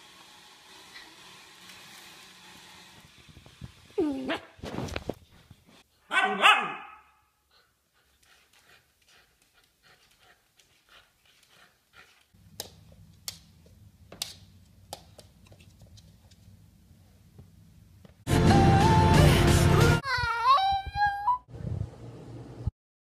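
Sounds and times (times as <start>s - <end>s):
faint panting: 7.4s - 12.4s.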